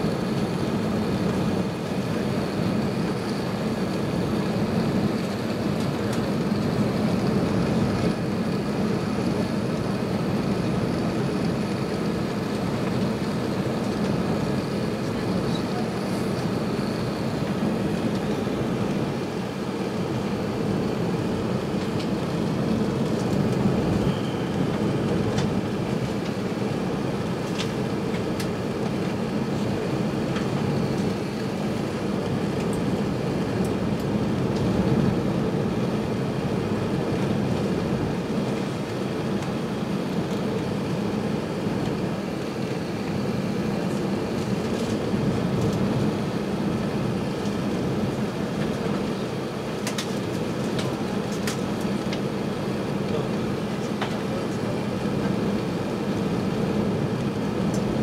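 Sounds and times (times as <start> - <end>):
airplane cabin engine rumble: 0.0 - 58.0.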